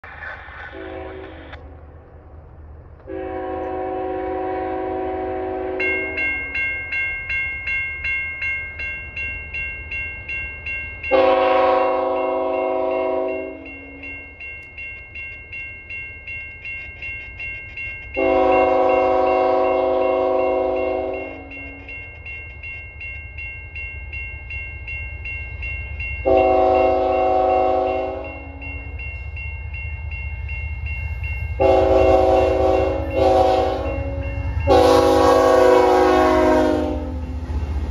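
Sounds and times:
locomotive air horn blasts: 0.7s - 1.6s, 3.1s - 6.2s, 11.1s - 13.7s, 18.2s - 21.5s, 26.2s - 28.6s, 31.6s - 37.2s
crossing bell ringing: 3.1s - 37.9s.

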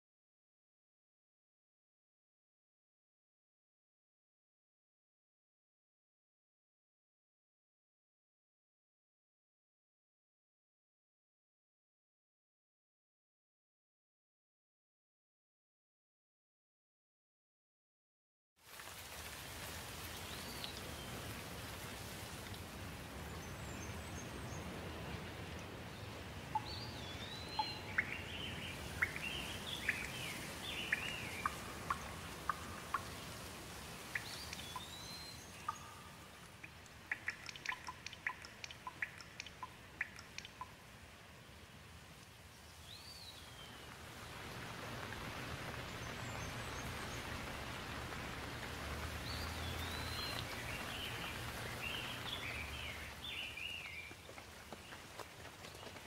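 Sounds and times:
steady rain: 18.6s - 56.0s
birds chirping: 23.2s - 41.6s, 42.4s - 56.0s.

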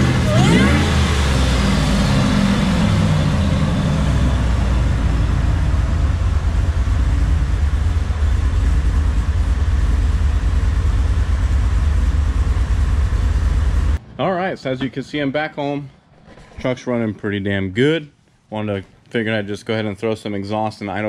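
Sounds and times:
car engine idling: 0.0s - 14.0s
loud low exhaust note: 0.0s - 14.0s.

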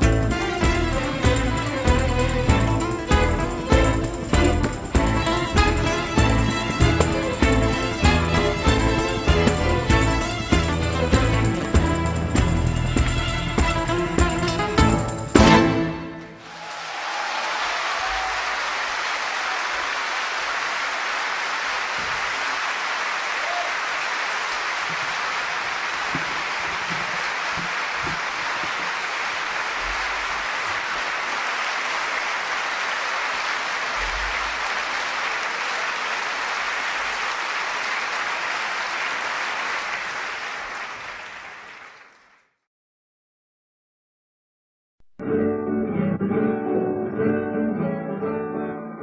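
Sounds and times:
audience applauding: 0.0s - 13.3s, 15.4s - 42.6s.

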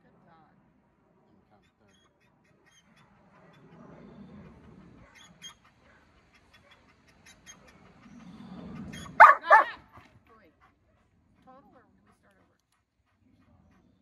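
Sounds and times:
dog panting: 3.1s - 14.0s
loud dog bark: 9.1s - 9.8s.

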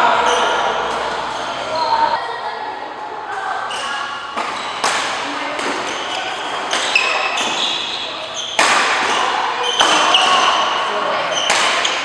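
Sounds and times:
shoes squeaking on floor: 0.0s - 2.2s, 3.6s - 12.0s
racket hitting shuttlecock: 4.3s - 12.0s.

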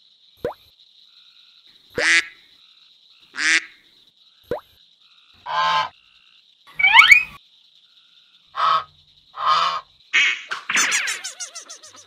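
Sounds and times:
faint high whine: 3.2s - 9.2s
duck-like quacks and honks: 8.6s - 11.1s.

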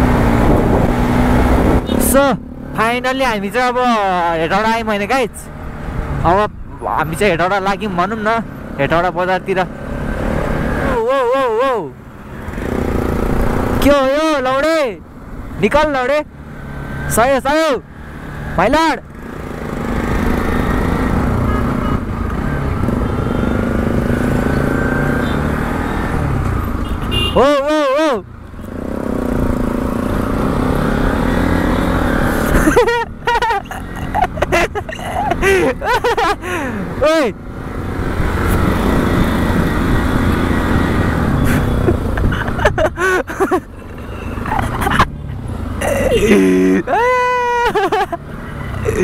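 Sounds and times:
wind noise: 0.0s - 1.9s
motorcycle engine: 0.0s - 14.6s, 15.2s - 49.0s
road noise: 0.0s - 49.0s
person calling out: 45.8s - 47.8s.

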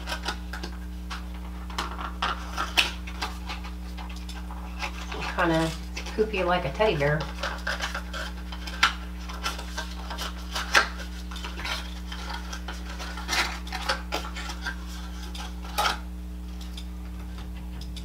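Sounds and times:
plastic bag crinkling: 0.0s - 16.0s
steady low hum: 0.0s - 18.0s
paperboard box clicks and rustles: 7.2s - 16.0s.

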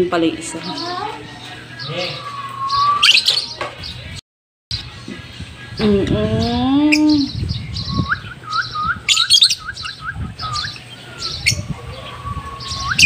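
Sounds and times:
lovebirds chirping and twittering: 0.0s - 13.0s
short rising bird notes: 1.8s - 3.5s.

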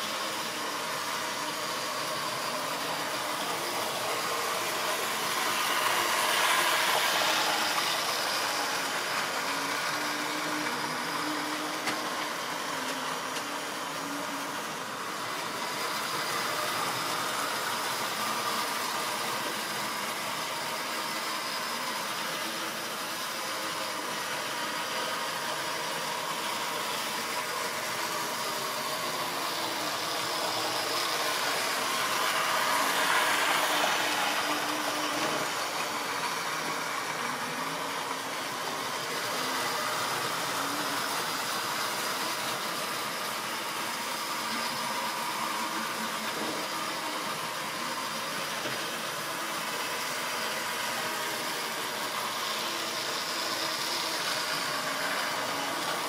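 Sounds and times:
model train motors whirring on rails: 0.0s - 56.0s.

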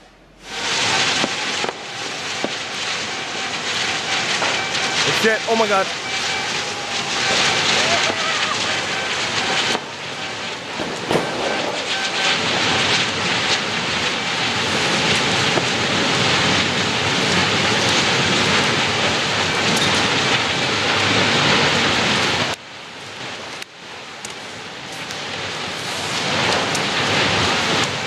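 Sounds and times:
rockets hissing overhead: 0.4s - 28.0s
pops and crackles: 0.8s - 18.7s.

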